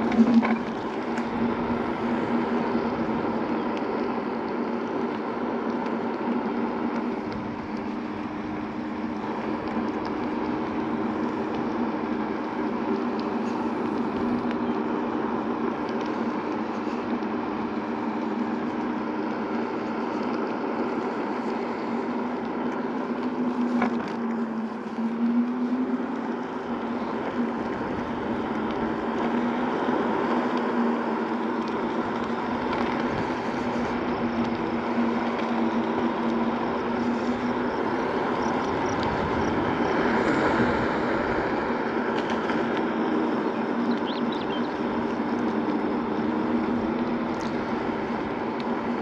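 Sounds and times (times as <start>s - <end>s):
electric motor hum: 0.0s - 49.0s
scooter tyres rolling: 0.0s - 49.0s
wind on microphone: 21.0s - 49.0s.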